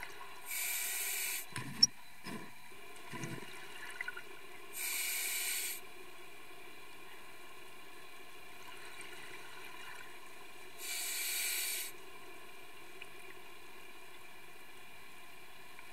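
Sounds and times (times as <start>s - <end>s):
breath through regulator: 0.5s - 1.5s, 4.8s - 5.8s, 10.8s - 12.0s
steady background hiss: 4.5s - 8.5s, 10.3s - 15.8s.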